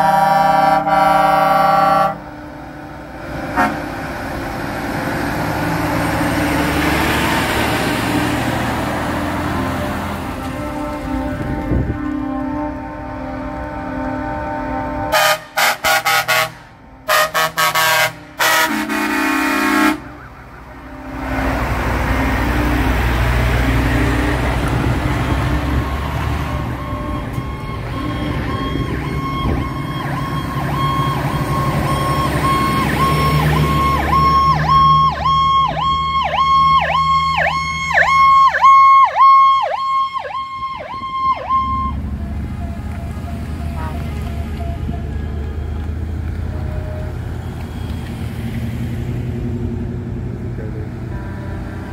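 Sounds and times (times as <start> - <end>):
truck air horn blasts: 0.0 - 2.6, 3.4 - 4.0, 9.6 - 22.8, 42.4 - 45.8, 46.4 - 48.0
heavy trucks driving past: 0.0 - 51.9
police siren pulsing rapidly: 25.7 - 47.2.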